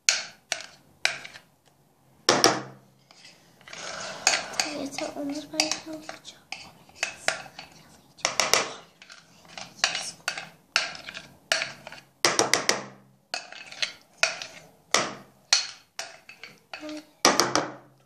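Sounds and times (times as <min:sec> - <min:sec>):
spoon scraping a bowl: 0:00.5 - 0:01.4, 0:03.0 - 0:12.1, 0:13.3 - 0:14.8.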